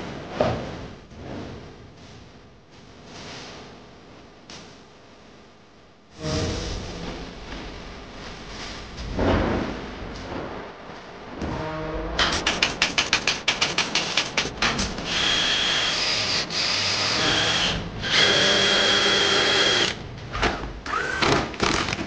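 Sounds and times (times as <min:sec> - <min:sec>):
drill sharp clicks: 0:12.2 - 0:20.0
drill motor whine: 0:15.1 - 0:20.0, 0:20.9 - 0:21.4.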